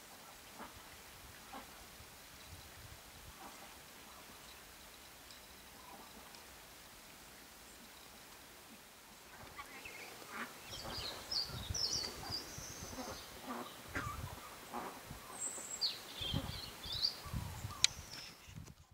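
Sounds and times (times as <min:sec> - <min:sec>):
small birds chirping: 0:07.3 - 0:18.6.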